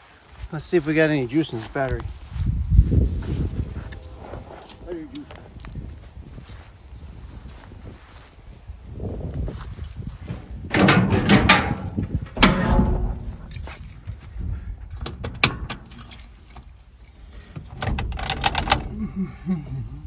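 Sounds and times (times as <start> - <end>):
car door opening with rattle: 10.3 - 13.8, 14.8 - 16.7, 17.5 - 18.9
keys jangling: 12.4 - 14.5, 15.7 - 17.3.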